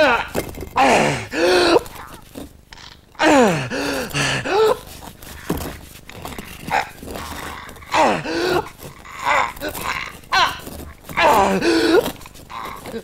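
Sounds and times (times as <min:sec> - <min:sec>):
man grunting and groaning: 0:00.0 - 0:01.9, 0:03.2 - 0:04.8, 0:07.9 - 0:13.0
heavy breathing: 0:03.2 - 0:13.0.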